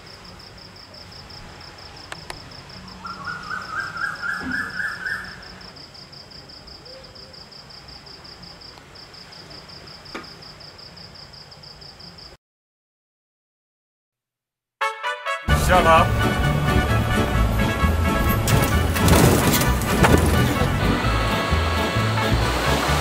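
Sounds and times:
cricket trilling: 0:00.0 - 0:12.4
bird calling rising notes: 0:03.0 - 0:05.6.

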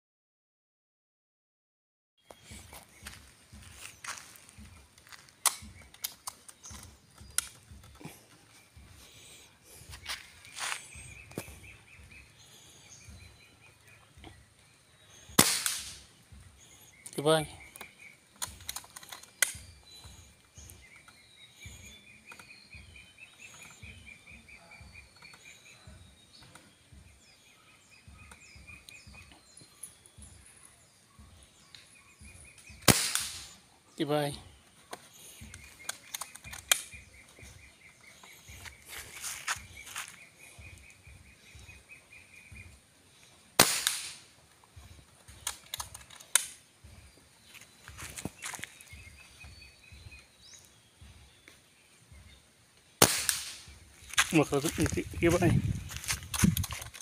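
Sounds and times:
birds chirping: 0:02.2 - 0:57.0
airgun action clicks: 0:05.0 - 0:08.0, 0:15.4 - 0:16.1, 0:17.8 - 0:19.6, 0:34.9 - 0:37.0, 0:45.2 - 0:46.6, 0:56.2 - 0:57.0
air rifle shot: 0:15.3 - 0:16.1, 0:32.8 - 0:33.6, 0:43.6 - 0:44.3, 0:53.0 - 0:53.8.

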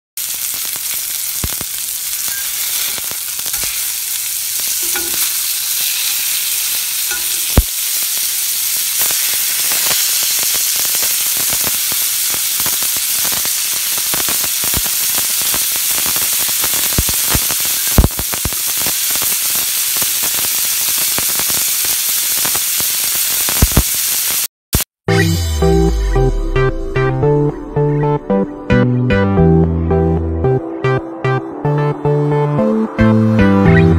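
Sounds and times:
burger patties sizzling in skillet: 0:00.2 - 0:24.5.

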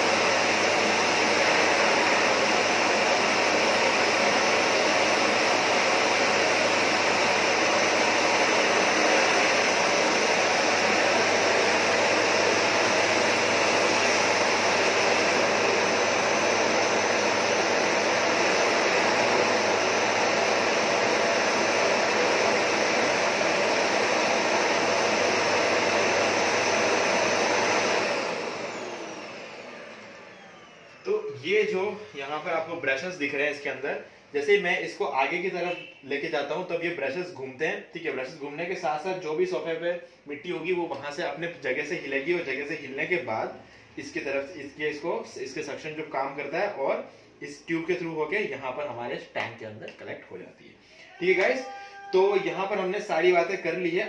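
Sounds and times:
vacuum motor winding down: 0:00.0 - 0:32.7
vacuum cleaner running: 0:00.0 - 0:34.2, 0:51.0 - 0:54.0.

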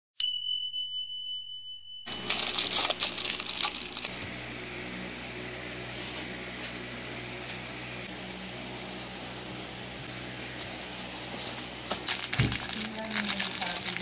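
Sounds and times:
high electronic tone: 0:00.6 - 0:04.2
steady low hum: 0:02.1 - 0:14.0.

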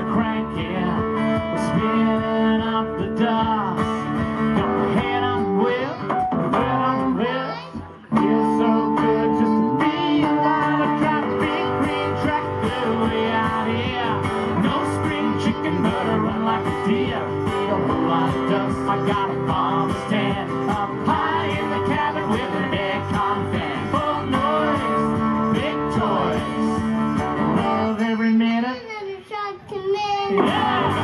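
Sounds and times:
electric bass: 0:00.0 - 0:28.0, 0:30.4 - 0:31.0
acoustic guitars strumming: 0:00.0 - 0:28.6, 0:30.1 - 0:31.0.

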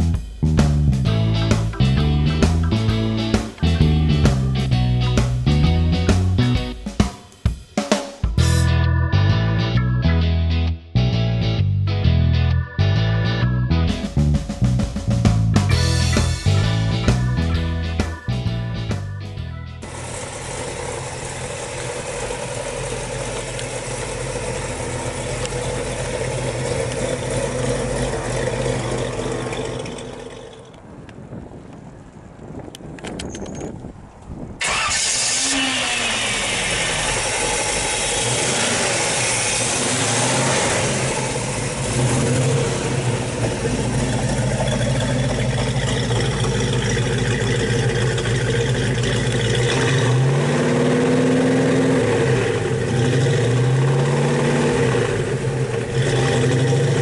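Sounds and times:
car engine running: 0:13.7 - 0:30.8, 0:34.6 - 0:57.0.

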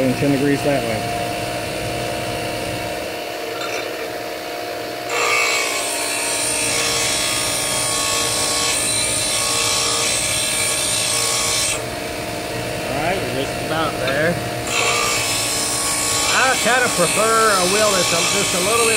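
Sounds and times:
bench grinder humming: 0:02.6 - 0:18.9.

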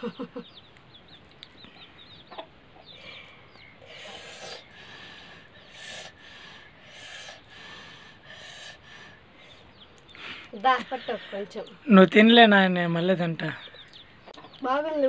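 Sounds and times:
chickens clucking: 0:00.0 - 0:11.9, 0:13.4 - 0:15.0
chicks peeping: 0:00.0 - 0:12.5, 0:13.4 - 0:15.0
short breathy huffs: 0:02.9 - 0:10.6.

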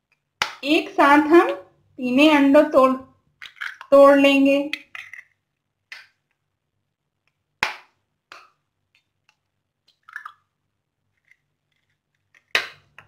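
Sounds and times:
eggs cracking against glass: 0:03.4 - 0:03.9, 0:04.8 - 0:06.1, 0:09.9 - 0:10.5.

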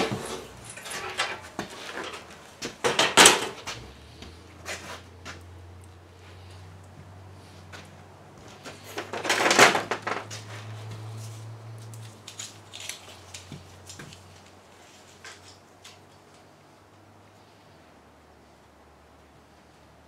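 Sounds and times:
clicks and knocks: 0:00.0 - 0:03.8
tools and metal parts clattering: 0:00.0 - 0:03.9, 0:08.5 - 0:10.8.

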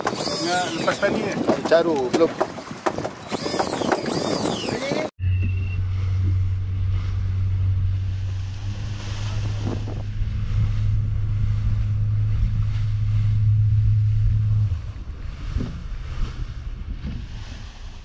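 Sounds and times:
water splashing along hull: 0:00.0 - 0:05.1, 0:05.9 - 0:18.0
wind on microphone: 0:00.0 - 0:18.0
boat engine drone: 0:03.1 - 0:18.0.

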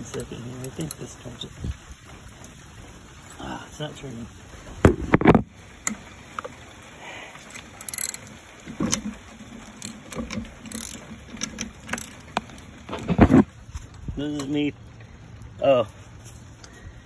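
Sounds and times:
wrench clicking on floor jack: 0:07.8 - 0:08.2, 0:09.8 - 0:12.1.

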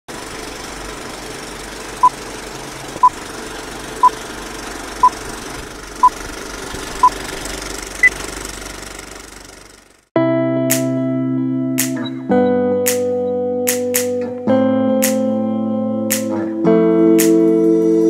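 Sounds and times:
film projector rattle and hiss: 0:00.1 - 0:10.0.

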